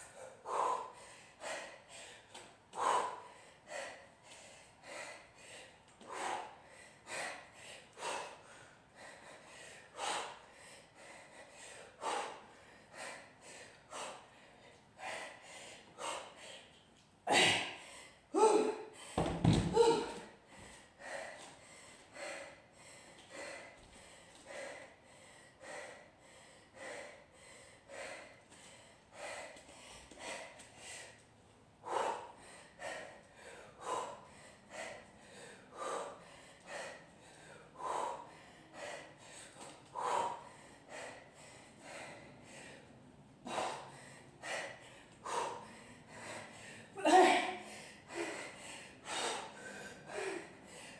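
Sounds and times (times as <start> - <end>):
woman breathing heavily: 0.0 - 50.9.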